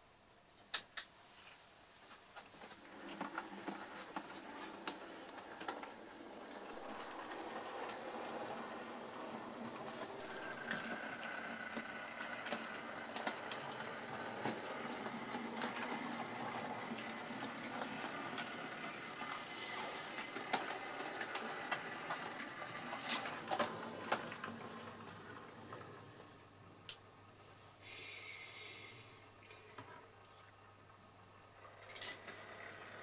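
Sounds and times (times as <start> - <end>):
wheels clicking over rail joints: 2.7 - 25.9
model train running on track: 2.8 - 26.2, 31.6 - 33.0.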